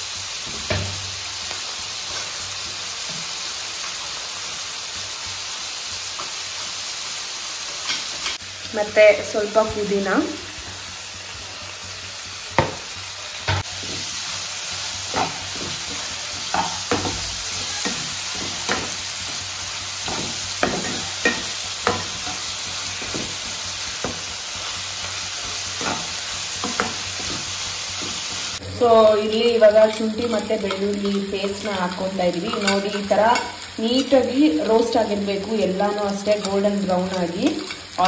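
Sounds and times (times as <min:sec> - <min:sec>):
vegetables sizzling in hot oil: 0:00.0 - 0:38.0
metal spoon scraping pan: 0:15.1 - 0:24.2, 0:29.5 - 0:34.3.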